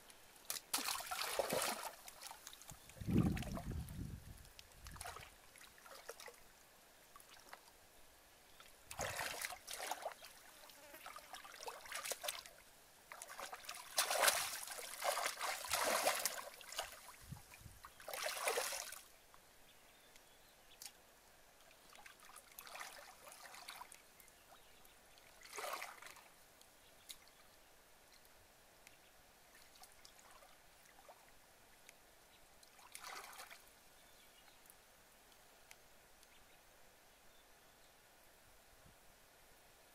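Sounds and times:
hands splashing in muddy water: 0.5s - 3.8s, 8.9s - 10.3s, 11.4s - 12.5s, 13.1s - 17.2s, 18.0s - 19.0s.

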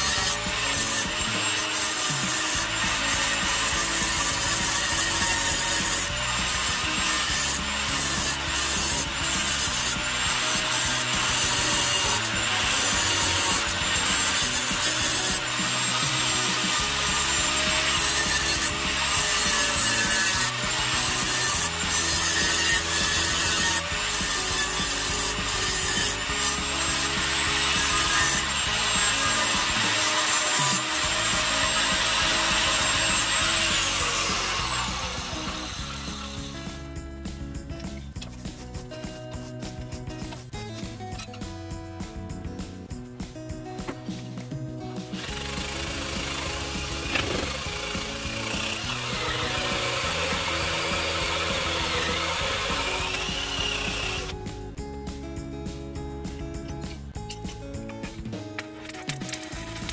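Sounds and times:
grinder disc spinning down: 0.0s - 37.0s, 45.1s - 54.4s
angle grinder grinding steel: 0.0s - 41.5s, 45.0s - 54.6s, 56.6s - 59.9s.

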